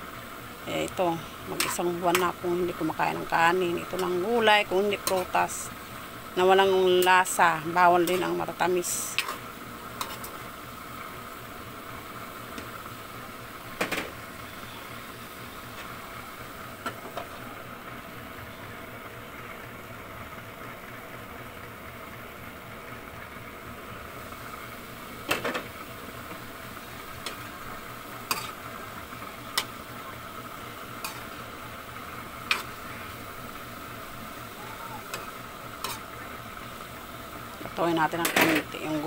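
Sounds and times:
food sizzling in a wok: 0.0 - 39.0
metal spatula scraping a pan: 10.0 - 10.4, 28.2 - 28.6, 31.0 - 31.4, 32.5 - 32.9, 35.1 - 36.1.

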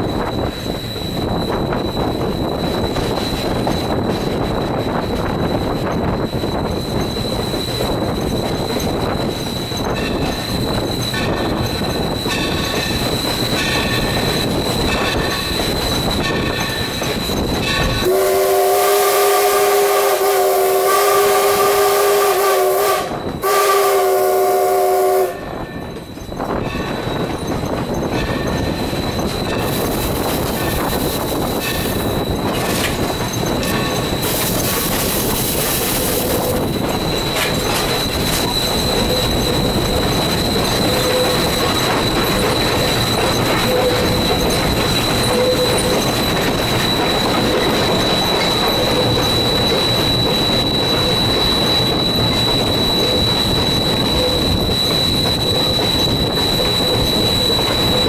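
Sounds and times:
train rolling and rail clatter: 0.0 - 58.0
steam locomotive whistle: 17.8 - 26.0, 34.0 - 58.0.

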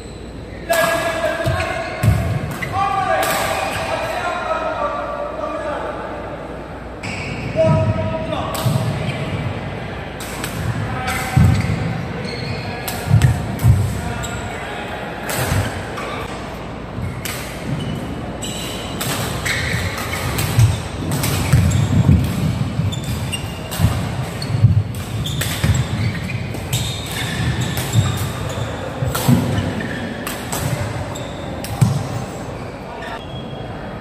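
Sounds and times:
shoes squeaking: 11.1 - 14.8, 17.0 - 33.6.

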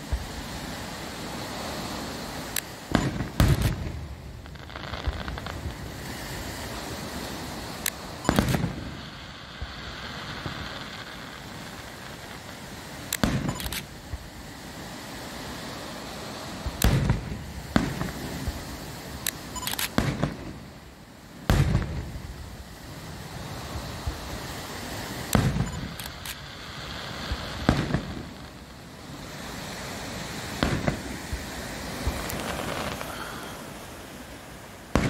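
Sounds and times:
fireworks hiss: 0.0 - 35.0
fireworks booming: 2.8 - 14.3, 16.6 - 18.8, 19.9 - 20.6, 21.4 - 22.5, 23.6 - 33.9.

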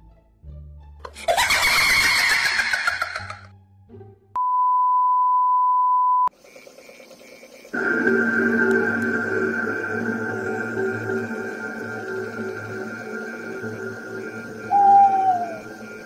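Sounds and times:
steady test tone beep: 4.4 - 6.3
loud shrill sound: 7.8 - 16.0.

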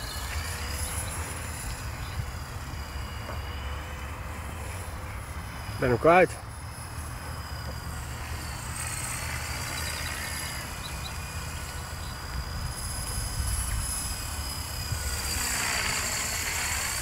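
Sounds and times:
rc helicopter motor whine: 0.0 - 17.0.

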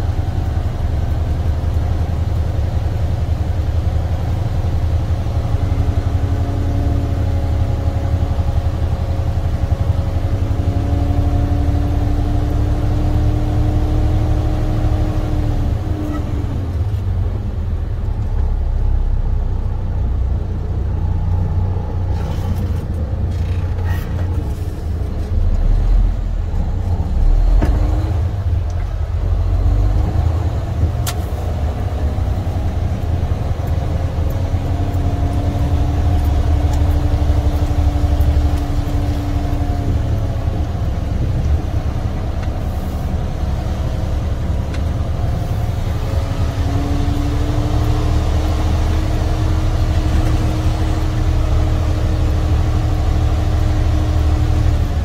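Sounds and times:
truck diesel engine rumbling: 0.0 - 55.0.

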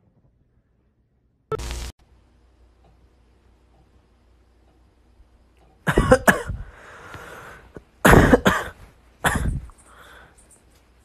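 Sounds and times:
person coughing harshly: 5.9 - 6.6, 8.0 - 9.7.

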